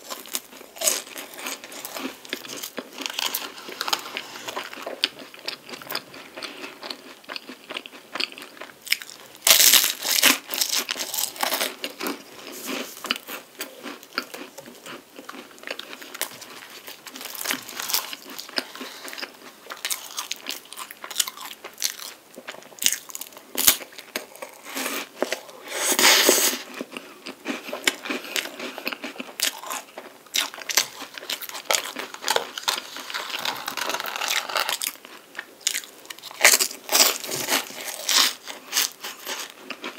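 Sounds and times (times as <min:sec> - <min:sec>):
crunching and chewing pastry: 0:00.0 - 0:39.9
paper wrapper crinkling: 0:32.1 - 0:34.9.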